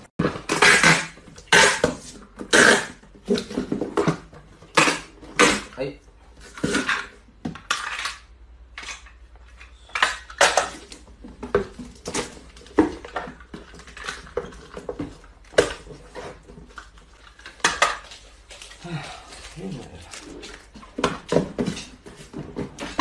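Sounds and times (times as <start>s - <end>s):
hard objects clattering: 0.1s - 23.0s.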